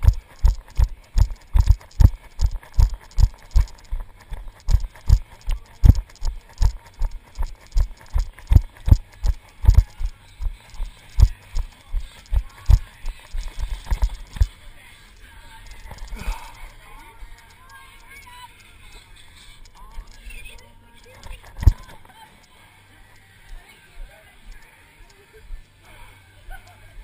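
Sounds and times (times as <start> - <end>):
running footsteps on rocky trail: 0.0 - 14.6, 21.3 - 22.0.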